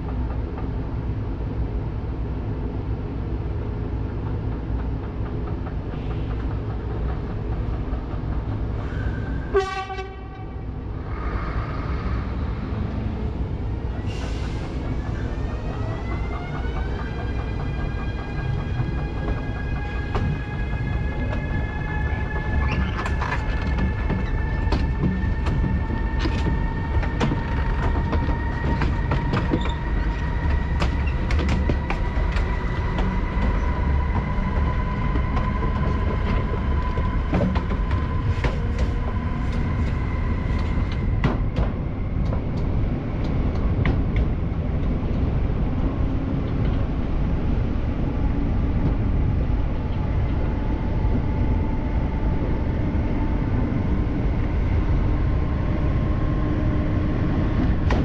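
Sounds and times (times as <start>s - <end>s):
electric locomotive rumble and whine: 0.0s - 58.0s
wheels clicking over rail joints: 14.9s - 44.9s.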